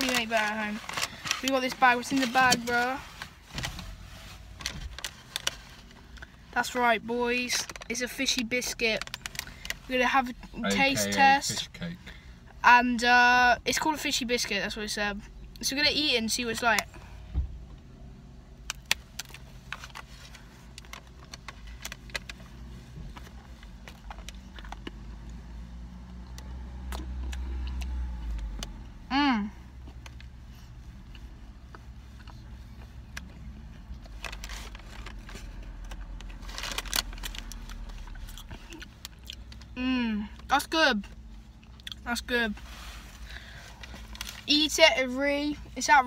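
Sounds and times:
low car rumble: 0:00.0 - 0:46.0
biscuit crunching and chewing: 0:29.8 - 0:39.8.

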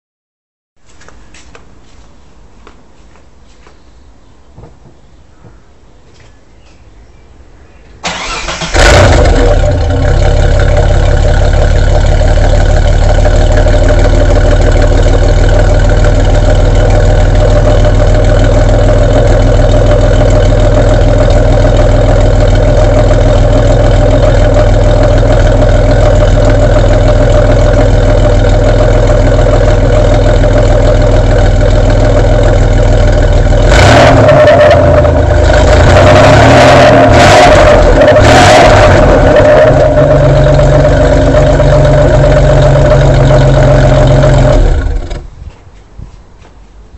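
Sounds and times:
engine revving: 0:08.0 - 0:45.2
car engine starting and idling: 0:08.0 - 0:45.4.

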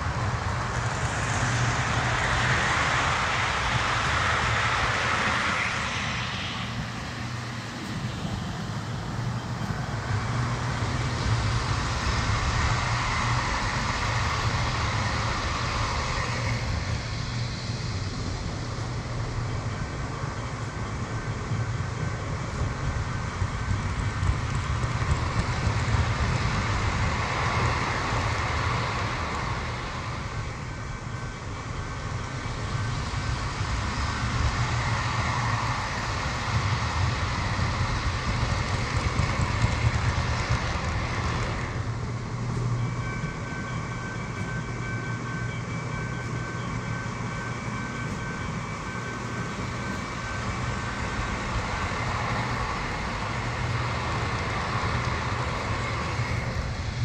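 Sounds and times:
model train wheels clattering: 0:33.7 - 0:41.9.

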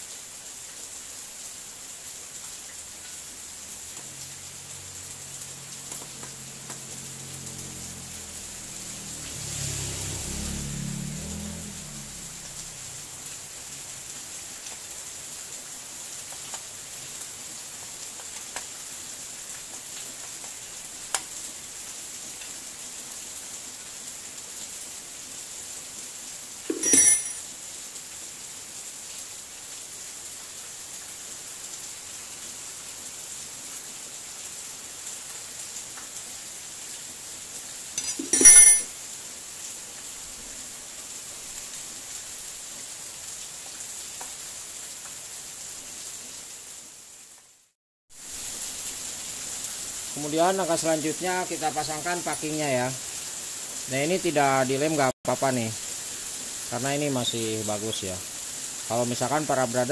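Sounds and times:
metallic clanks of steel tools: 0:26.7 - 0:27.4, 0:38.0 - 0:38.9
steady high hiss: 0:48.2 - 0:59.9.

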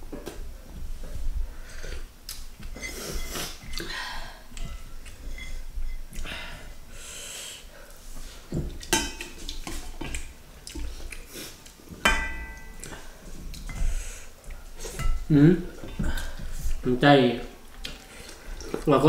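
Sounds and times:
spoon clinking on plates: 0:08.9 - 0:10.1, 0:12.0 - 0:13.0.

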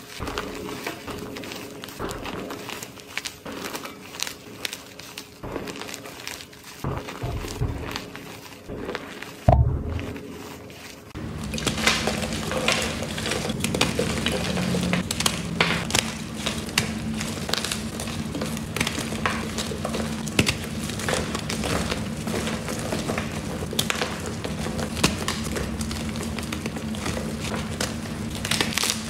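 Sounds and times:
chalk blocks crumbling crackle: 0:00.0 - 0:29.0
hands squeezing powdery chalk: 0:00.0 - 0:29.0
thump: 0:09.5 - 0:10.2.

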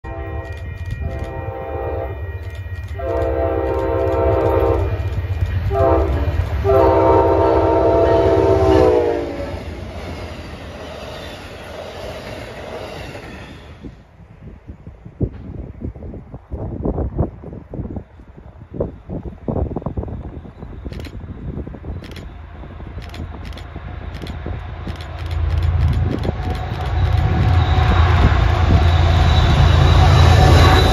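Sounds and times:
locomotive air horn: 0:00.0 - 0:05.0, 0:05.7 - 0:09.6, 0:26.6 - 0:30.9
train wheels on rails: 0:00.0 - 0:30.9
locomotive engine rumble: 0:19.2 - 0:30.9.

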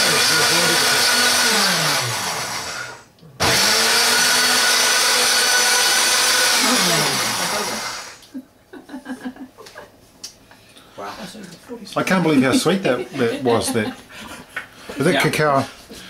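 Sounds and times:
blender whirring: 0:00.0 - 0:08.3.

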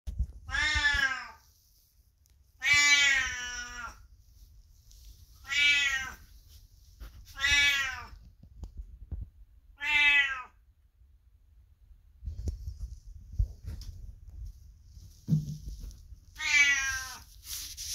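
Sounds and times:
cat meowing loudly: 0:00.4 - 0:01.4, 0:02.6 - 0:04.0, 0:05.4 - 0:06.2, 0:07.3 - 0:08.2, 0:09.8 - 0:10.6, 0:16.4 - 0:17.3.

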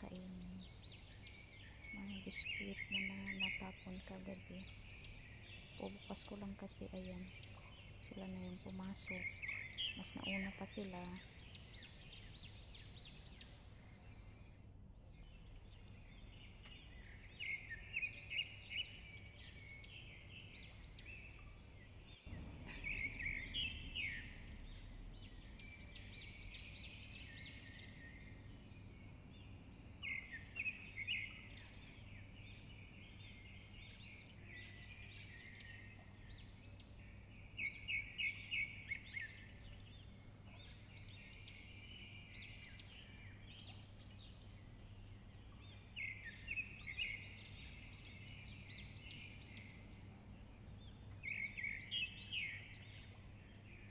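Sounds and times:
small birds chirping: 0:00.0 - 0:53.9
steady low hum: 0:20.2 - 0:35.2.

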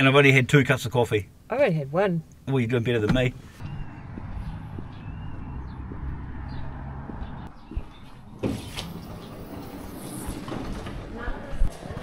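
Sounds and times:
van engine and road rumble: 0:02.4 - 0:12.0.

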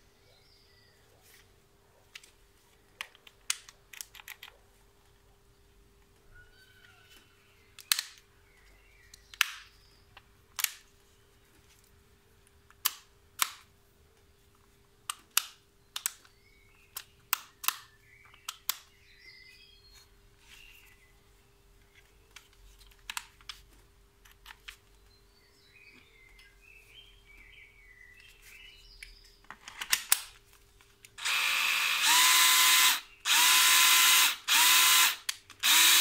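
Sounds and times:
plastic clicks of a drill: 0:31.1 - 0:36.0.

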